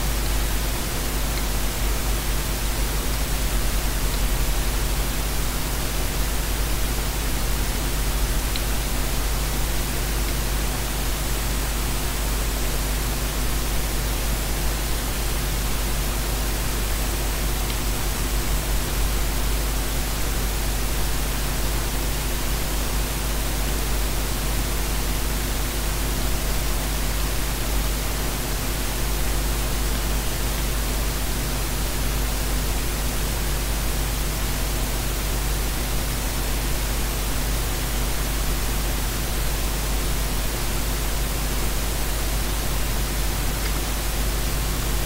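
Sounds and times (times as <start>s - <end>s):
steady low hum: 0.0s - 22.7s.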